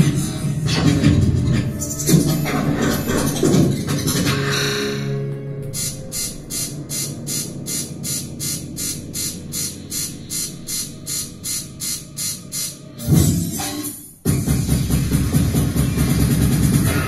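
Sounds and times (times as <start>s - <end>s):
low steady drone: 1.5s - 13.7s
sharp high ticking: 5.8s - 12.9s.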